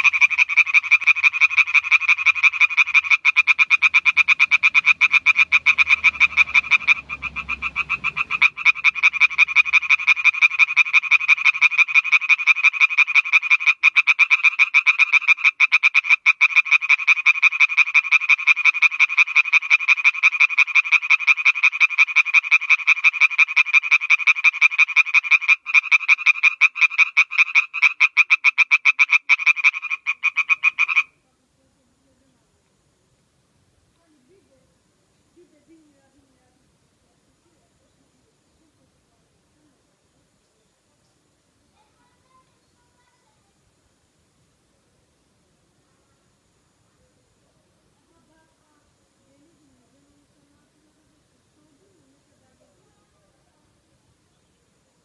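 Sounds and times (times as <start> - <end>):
tree frog croaking: 0.0 - 31.2.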